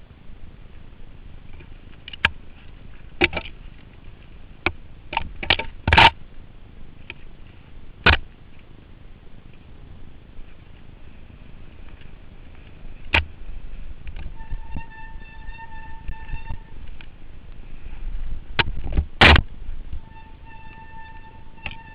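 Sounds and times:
steady background noise: 0.0 - 21.9
bike knocking and rattling: 1.4 - 6.3, 11.5 - 21.9.

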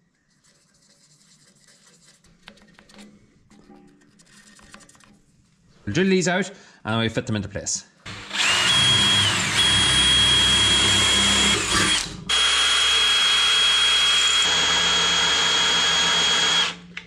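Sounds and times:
cordless drill boring through steel: 8.1 - 16.9.

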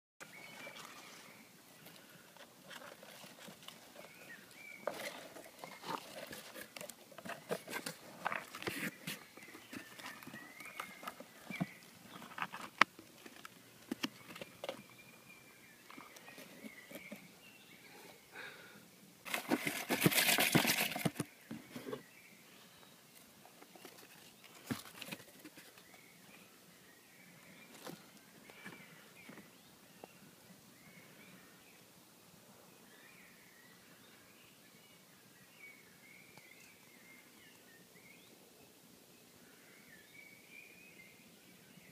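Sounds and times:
mice scratching on cardboard: 2.4 - 14.8, 19.3 - 22.0
cardboard box rustling scrape: 2.7 - 10.2, 19.3 - 22.1.

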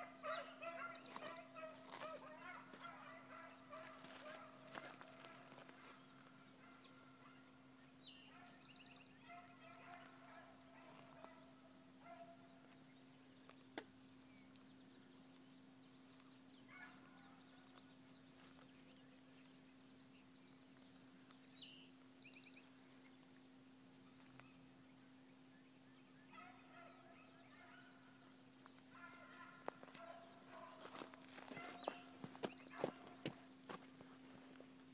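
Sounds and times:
distant hounds baying: 0.0 - 12.9, 16.6 - 18.6, 26.2 - 34.0.

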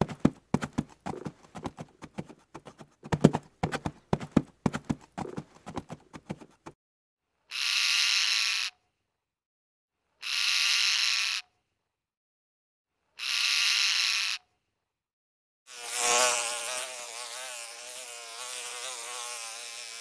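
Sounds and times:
hoofbeats: 0.0 - 6.7.

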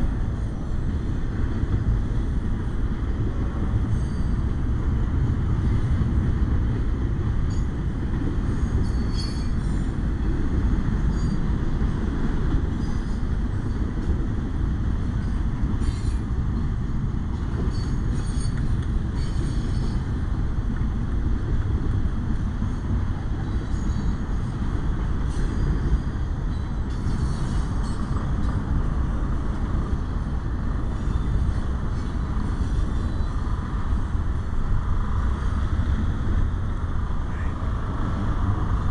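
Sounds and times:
freight train wheels rumbling: 0.0 - 38.9
wheel squeals: 3.9 - 4.4, 8.6 - 9.9, 11.0 - 11.5, 12.8 - 13.3, 17.6 - 20.0, 30.9 - 33.5.

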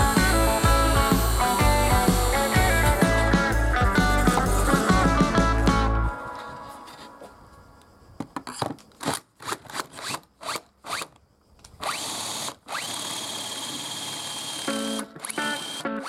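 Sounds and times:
power drill boring into plywood: 0.0 - 3.4, 9.0 - 11.2, 11.8 - 16.0
background music: 0.0 - 7.3.

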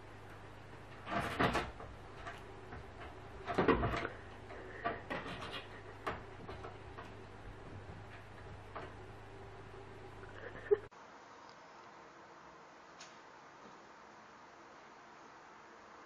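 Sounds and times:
low steady hum: 0.0 - 16.0
objects knocking and clattering: 1.0 - 9.0.

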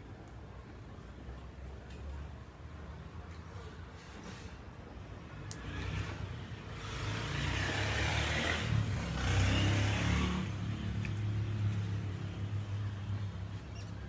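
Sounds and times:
motor vehicle passing by: 5.2 - 14.0.

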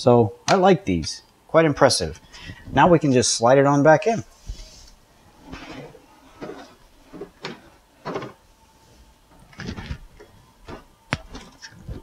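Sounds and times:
dishwasher scraping and knocking: 5.5 - 8.4.

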